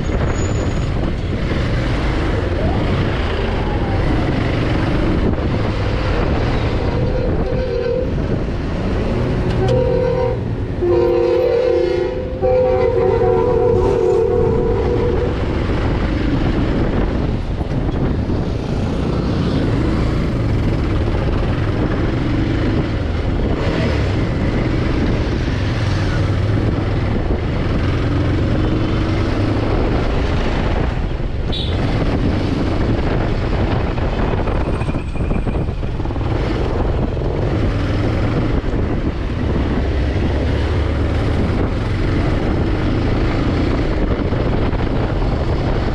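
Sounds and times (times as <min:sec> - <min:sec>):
wind and road noise: 0:00.0 - 0:45.9
vehicle horn blasts: 0:06.7 - 0:08.2, 0:09.6 - 0:15.4, 0:31.5 - 0:31.8.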